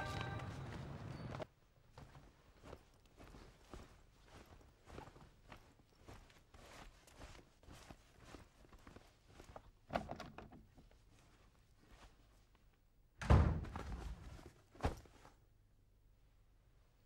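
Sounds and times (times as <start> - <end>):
wooden door thudding shut: 13.2 - 13.8.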